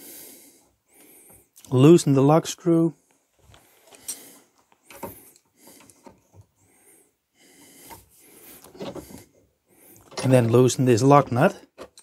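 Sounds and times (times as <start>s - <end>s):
hand tool clicking on metal: 11.3s - 12.0s.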